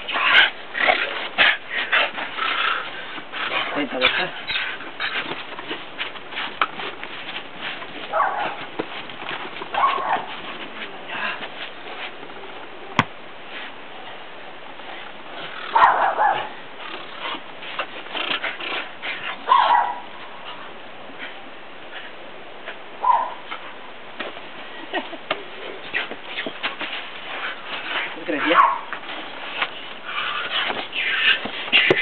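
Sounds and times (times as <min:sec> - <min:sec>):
scuffling and knocks: 0:01.0 - 0:13.8, 0:24.1 - 0:32.0
puppy barking: 0:08.1 - 0:08.6, 0:09.8 - 0:10.3, 0:15.7 - 0:16.5, 0:19.5 - 0:20.1, 0:23.0 - 0:23.4, 0:28.4 - 0:28.9.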